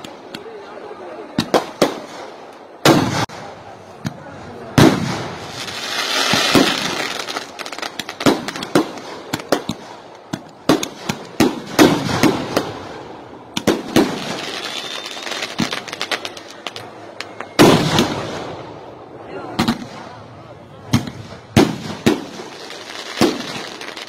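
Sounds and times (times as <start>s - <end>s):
fireworks bangs and crackles: 0.0s - 24.0s
fireworks fizzing hiss: 4.8s - 16.8s.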